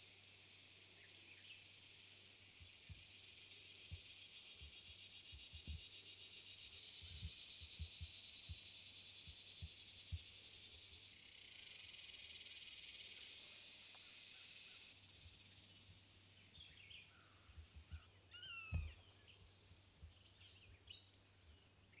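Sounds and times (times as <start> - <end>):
shrill insect chorus: 0.0 - 19.6
bird chirping: 14.1 - 22.0.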